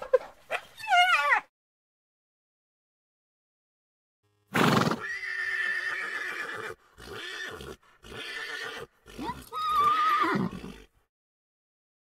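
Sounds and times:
horse whinnying: 4.5 - 11.0.

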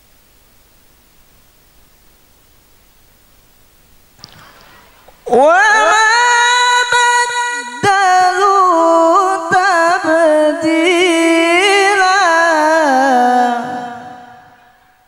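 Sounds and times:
man chanting into a microphone: 5.3 - 14.8.

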